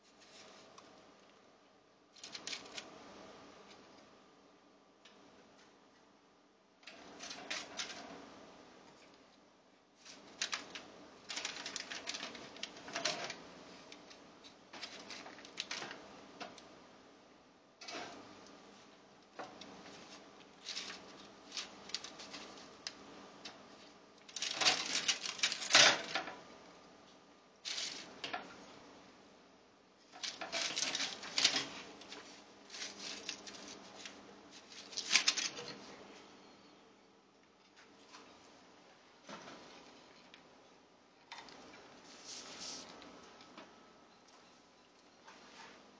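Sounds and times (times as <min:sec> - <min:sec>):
aluminium foil crinkling: 0:02.1 - 0:03.0, 0:06.8 - 0:08.0, 0:10.0 - 0:16.6, 0:19.4 - 0:26.4, 0:27.6 - 0:28.4, 0:30.0 - 0:35.9
cat rattling toaster oven: 0:06.8 - 0:08.1, 0:10.1 - 0:13.4, 0:24.3 - 0:26.4, 0:30.2 - 0:31.8.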